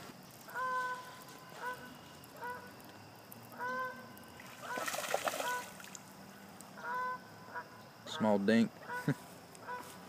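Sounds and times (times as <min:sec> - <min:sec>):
goose honking: 0:06.8 - 0:08.2.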